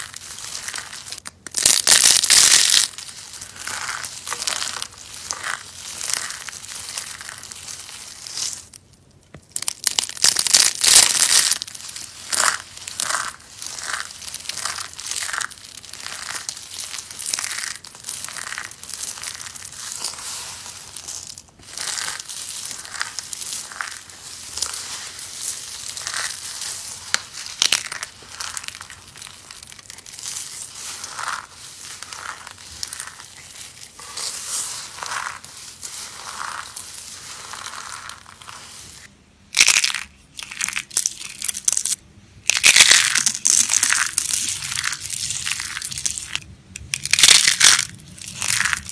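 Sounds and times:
soap crunching: 0.0s - 39.0s, 42.5s - 48.9s.

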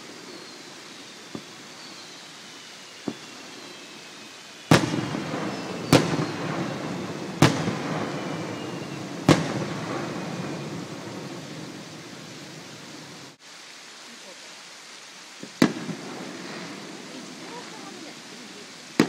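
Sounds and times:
firework shells bursting: 0.0s - 13.3s, 15.4s - 18.2s
rolling echo off valley: 4.7s - 13.4s.

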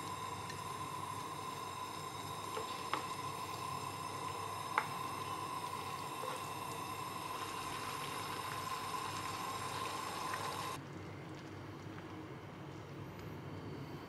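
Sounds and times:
food simmering in a frying pan: 0.0s - 13.9s.

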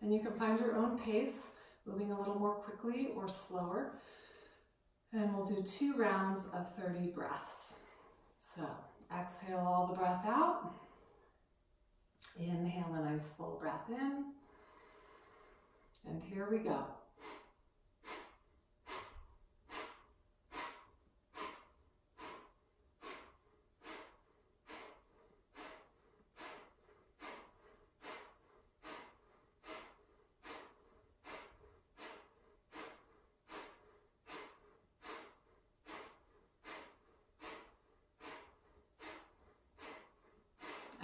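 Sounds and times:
forceful nasal exhales: 14.4s - 15.9s, 17.2s - 41.0s.

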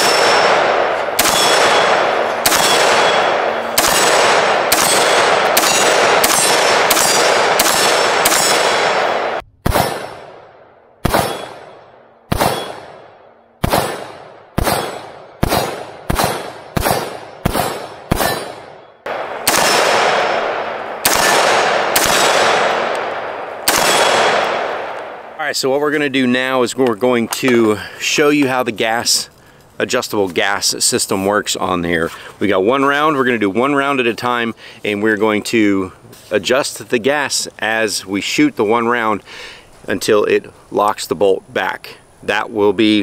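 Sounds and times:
steel targets ringing: 0.0s - 8.7s
rifle shots with echo: 0.0s - 25.4s.

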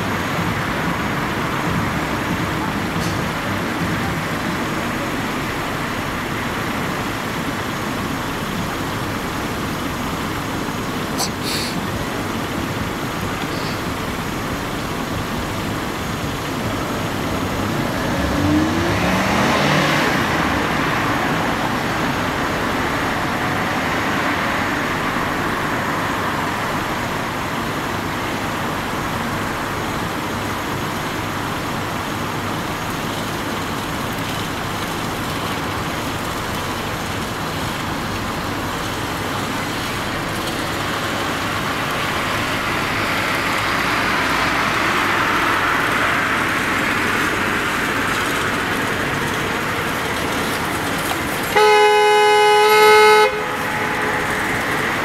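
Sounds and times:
hum of traffic: 0.0s - 55.0s
vehicle passing: 17.6s - 22.3s, 53.2s - 55.0s.

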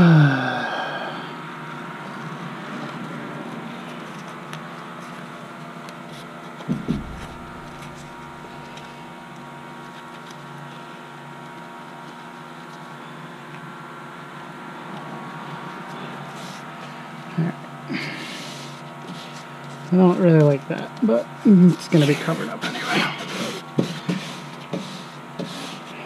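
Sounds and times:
machine hum: 6.1s - 23.8s
dull thumps: 6.7s - 9.0s.

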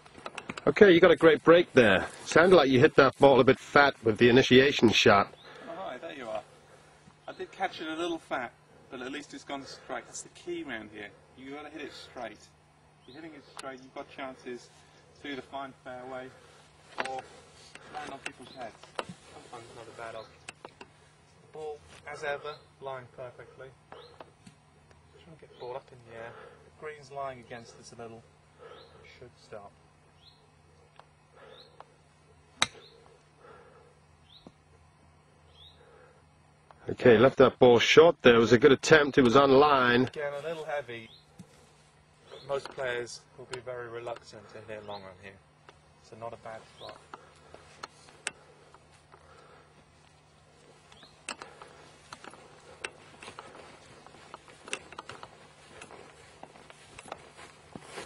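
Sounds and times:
birds chirping: 0.0s - 58.0s
footsteps on grass: 16.4s - 20.4s, 46.4s - 58.0s
golf club striking ball: 32.6s - 32.9s.

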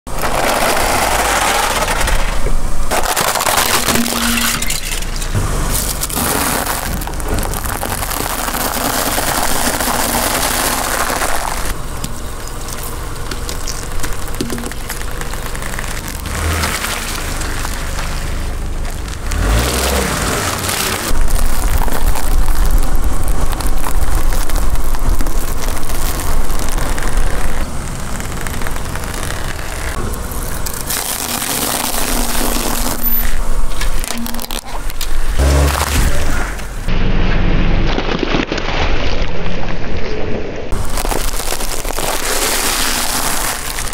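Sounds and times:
car engine running low: 0.1s - 37.7s
tyre crushing objects: 0.1s - 39.2s, 40.7s - 43.9s
tyre crunching dried noodles: 5.6s - 11.8s, 12.6s - 36.7s, 40.7s - 43.9s.

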